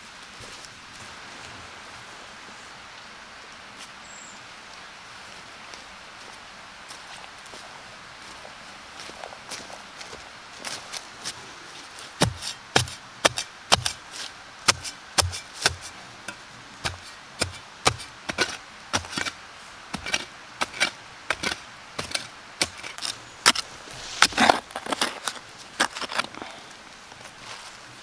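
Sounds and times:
spade chopping into soil: 0:12.2 - 0:14.0, 0:14.7 - 0:15.9, 0:16.8 - 0:19.4, 0:20.0 - 0:26.3
spade scraping soil: 0:12.2 - 0:27.8.

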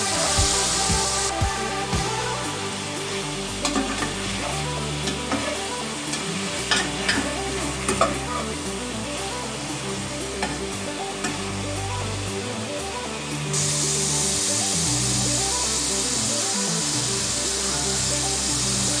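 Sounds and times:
chicken sizzling in hot oil: 0:13.5 - 0:19.0.

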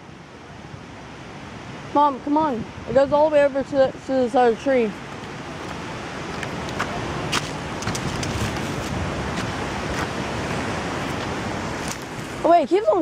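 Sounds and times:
wind noise on microphone: 0:00.0 - 0:13.0
footsteps on dry leaves: 0:05.0 - 0:12.4.

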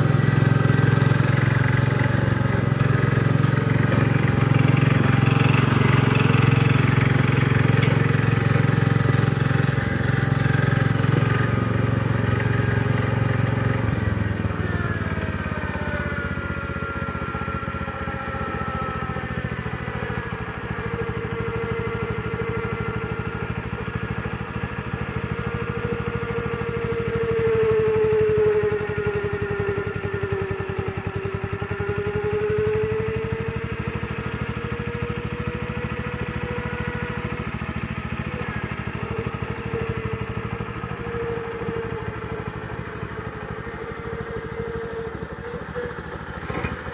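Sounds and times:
blade pushing dirt: 0:00.0 - 0:14.0
tractor engine running under load: 0:00.0 - 0:46.9.

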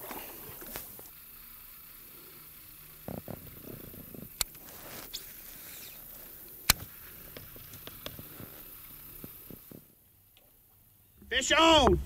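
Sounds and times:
faint steady hiss: 0:00.0 - 0:12.0
sharp clicks: 0:03.3 - 0:09.8.

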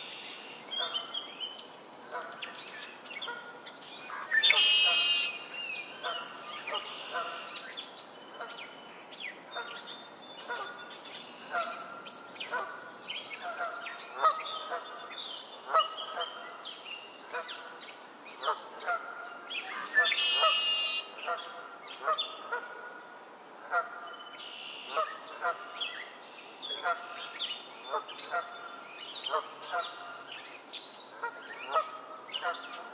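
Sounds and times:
songbird buzzy song: 0:00.0 - 0:32.9
geese honking: 0:06.0 - 0:07.5, 0:20.0 - 0:21.7.

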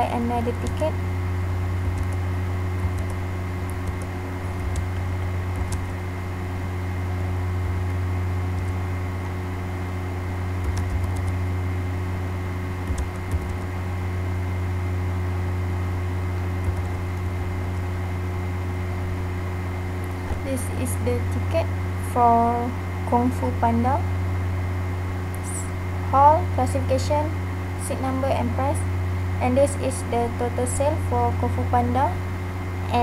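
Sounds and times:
low electrical hum: 0:00.0 - 0:33.0.

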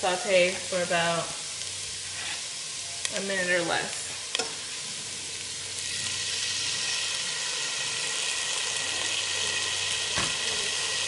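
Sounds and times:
onion sizzling in hot oil: 0:00.0 - 0:11.0.

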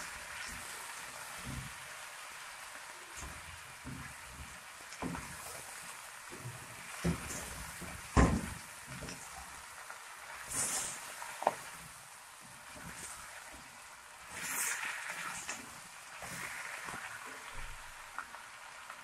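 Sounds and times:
chicken sizzling in oil: 0:00.0 - 0:19.0
spatula stirring in pot: 0:03.1 - 0:11.9, 0:12.5 - 0:17.8.

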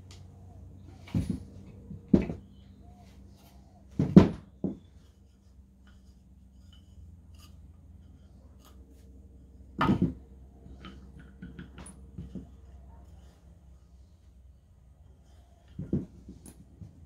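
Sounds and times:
wooden knock: 0:04.0 - 0:04.9, 0:09.8 - 0:10.2.

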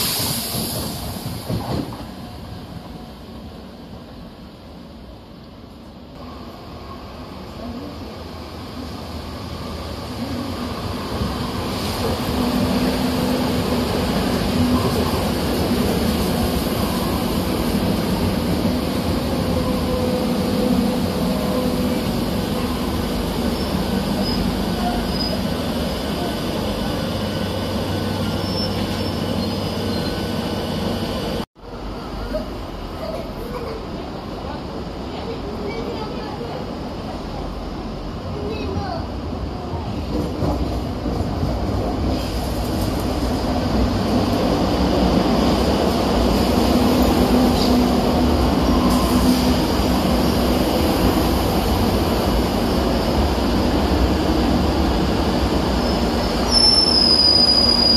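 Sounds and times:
train wheels rumbling on track: 0:00.0 - 0:57.9
faint high squeals: 0:55.9 - 0:57.9.

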